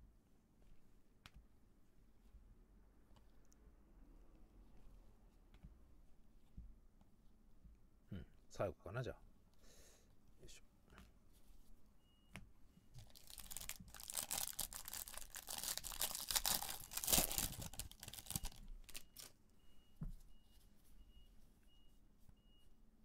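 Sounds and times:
soft handling of cards: 0.5s - 7.8s, 10.8s - 19.4s
wrapper crinkling and tearing: 13.0s - 19.4s.

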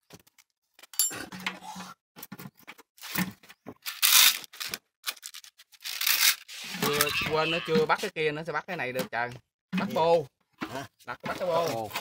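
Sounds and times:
parts rustling and clattering: 0.0s - 7.1s.

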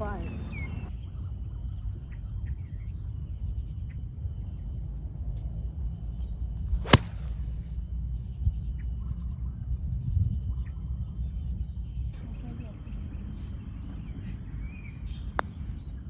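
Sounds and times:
steady low rumble: 0.0s - 16.0s
golf club striking ball: 6.8s - 7.5s.

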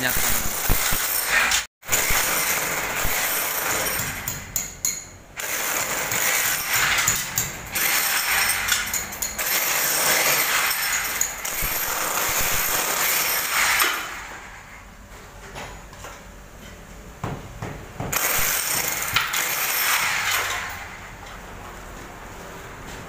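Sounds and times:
power tool on masonry wall: 0.0s - 4.3s, 5.4s - 14.5s, 18.1s - 20.9s.

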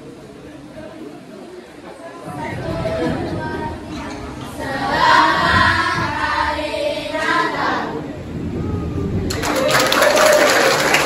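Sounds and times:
children singing together: 2.5s - 8.1s.

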